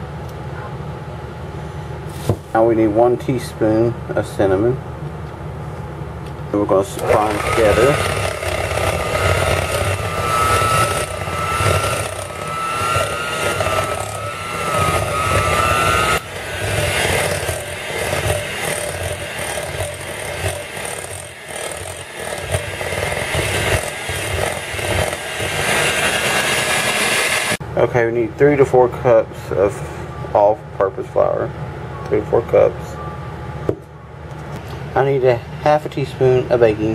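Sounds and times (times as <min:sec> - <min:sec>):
electric hand mixer whining: 0:06.9 - 0:27.6.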